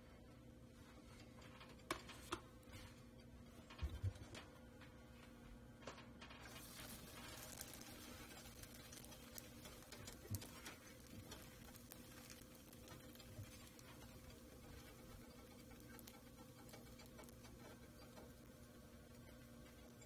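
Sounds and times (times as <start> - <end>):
steady low hum: 0.0 - 20.0
tortilla crackling on griddle: 6.5 - 20.0.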